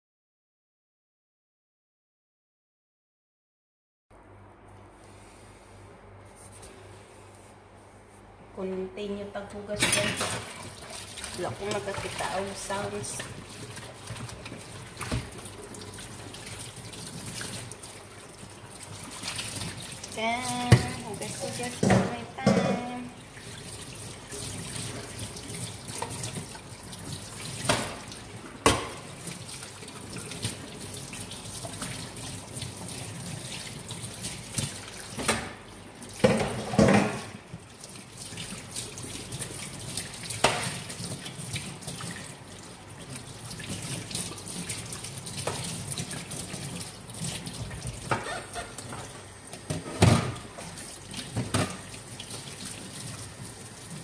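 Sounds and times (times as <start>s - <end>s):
metal pots and utensils clanking: 9.8s - 10.4s, 21.8s - 23.1s
tap running: 20.5s - 21.0s.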